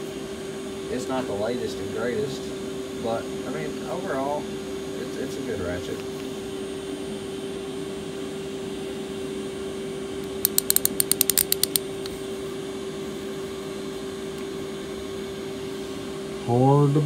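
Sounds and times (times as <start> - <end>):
steady hum: 6.4 - 17.0
hand ratchet clicking: 10.3 - 11.8.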